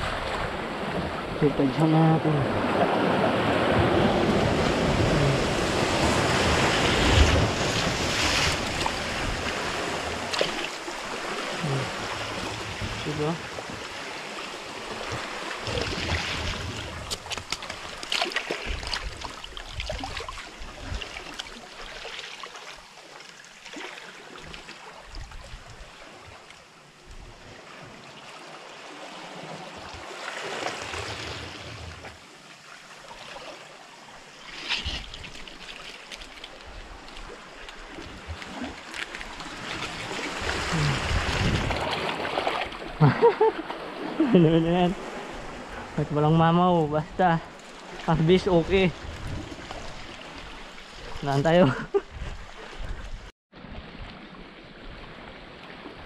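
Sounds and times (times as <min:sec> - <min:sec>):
sea water splashing among rocks: 0:02.6 - 0:26.5, 0:27.5 - 0:46.0.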